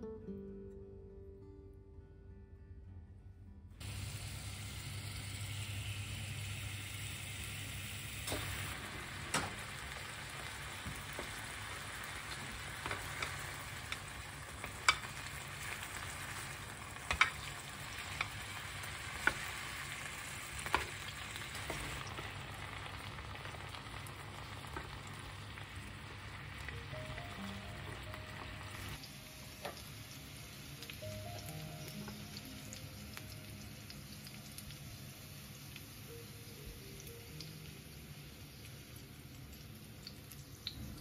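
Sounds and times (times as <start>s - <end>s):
skewers sizzling in oil: 3.8s - 41.0s
metal tongs clicking on pan: 12.8s - 15.3s, 17.0s - 18.5s.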